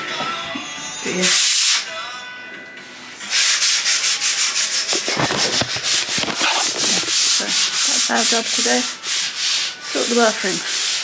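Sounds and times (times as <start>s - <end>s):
hand sanding wood: 3.3s - 11.0s.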